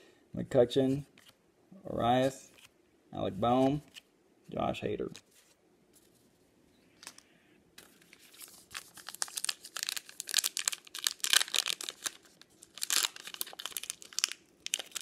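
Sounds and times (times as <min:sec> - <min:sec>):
card pack wrapper crinkling and tearing: 0:07.8 - 0:15.0.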